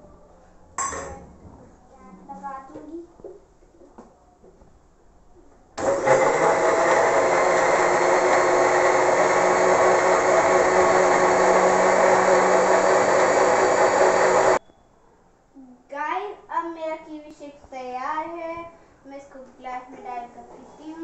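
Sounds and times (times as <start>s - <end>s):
mixer grinder motor running: 5.8s - 14.6s.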